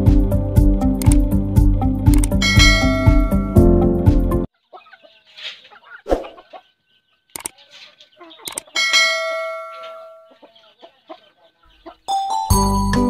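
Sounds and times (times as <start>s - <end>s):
sharp clicks: 1.0s - 1.3s, 2.1s - 2.4s, 7.3s - 7.6s, 8.4s - 8.7s
bell-like ding: 2.4s - 3.6s
chickens clucking: 4.5s - 12.2s.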